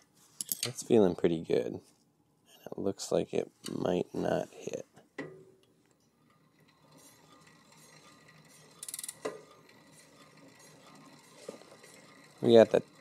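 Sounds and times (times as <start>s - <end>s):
brake rotor rubbing pad: 6.8s - 12.9s.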